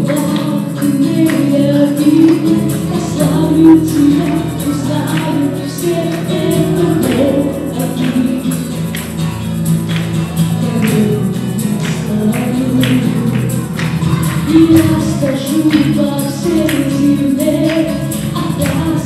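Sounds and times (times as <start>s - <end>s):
group of singers singing: 0.0s - 8.9s, 14.2s - 19.0s
acoustic guitar: 0.0s - 19.0s
bass guitar: 0.0s - 19.0s
keyboard: 0.0s - 19.0s.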